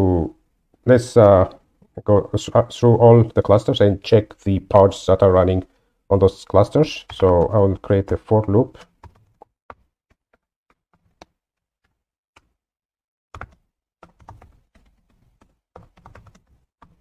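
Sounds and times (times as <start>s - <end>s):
computer keyboard typing: 6.7s - 12.5s, 13.3s - 17.0s.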